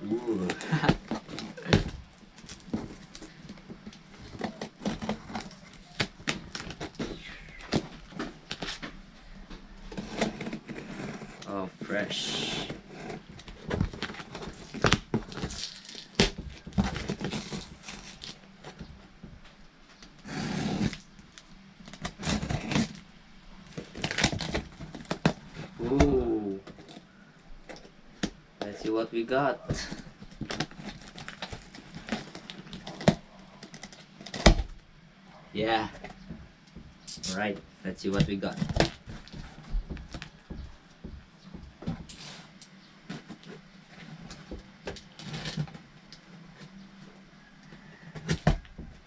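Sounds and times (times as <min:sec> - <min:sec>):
tape ripping off cardboard: 0:12.2 - 0:18.8, 0:20.0 - 0:23.0.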